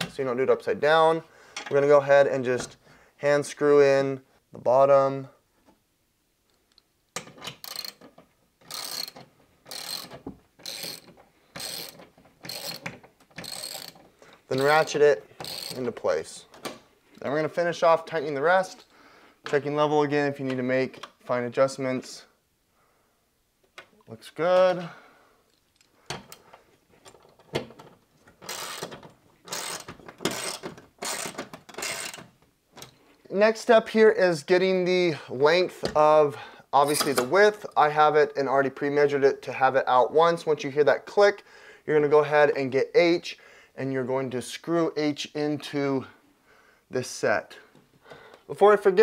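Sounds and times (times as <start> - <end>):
socket ratchet clicking: 7.2 - 15.8, 28.4 - 33.0.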